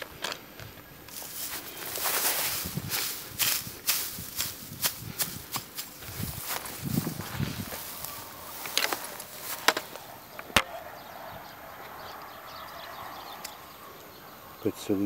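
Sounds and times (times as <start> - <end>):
hands rustling in grass and soil: 0.4 - 10.6.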